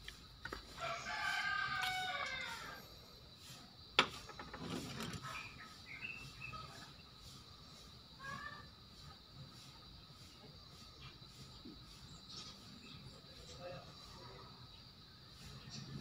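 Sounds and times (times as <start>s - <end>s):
rooster crowing: 0.7s - 3.0s.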